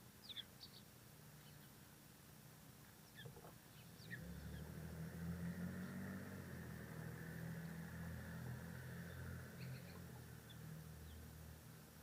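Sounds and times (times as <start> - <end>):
faint bird chirps: 0.2 - 1.9, 3.0 - 4.8, 9.0 - 11.3
low engine hum: 3.8 - 12.0.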